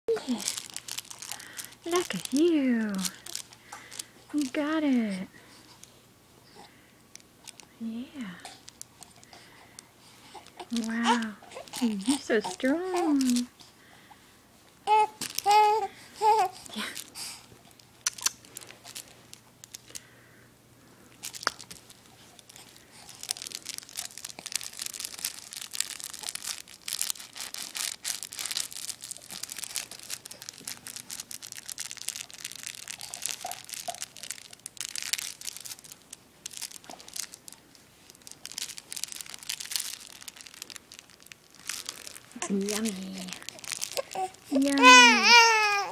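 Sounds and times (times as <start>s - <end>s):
baby toy crinkling and rustling: 0.1s - 14.2s, 14.8s - 20.2s, 21.1s - 45.9s
baby cooing: 14.9s - 16.8s, 42.4s - 45.9s.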